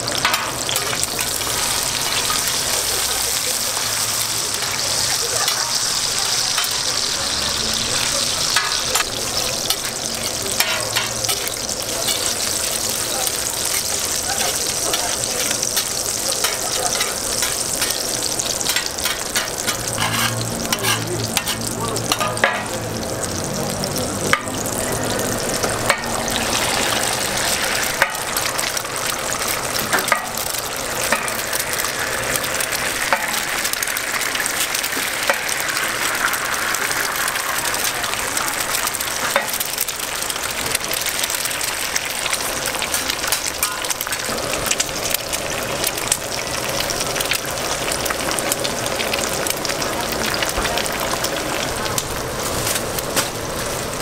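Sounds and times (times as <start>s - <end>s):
food sizzling on a griddle: 0.0s - 54.0s
metal spatulas clicking on griddle: 0.2s - 1.4s, 10.5s - 11.5s, 15.8s - 18.0s, 18.6s - 22.7s.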